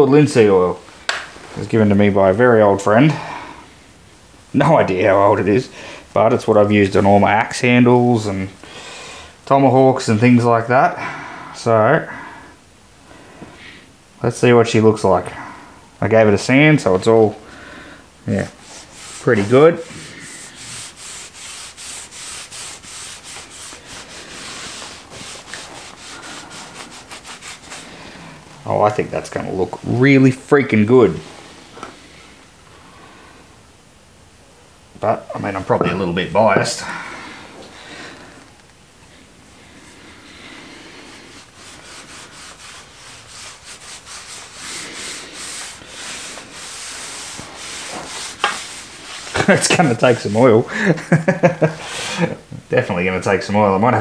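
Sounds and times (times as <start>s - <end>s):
cloth rag rubbing on wood: 6.2s - 8.6s, 18.3s - 32.1s, 39.6s - 51.8s.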